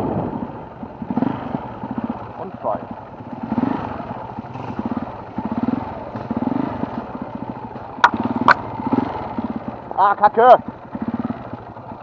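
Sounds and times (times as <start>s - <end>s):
motorcycle engine surging: 0.0s - 12.0s
sharp knocks: 8.0s - 8.6s.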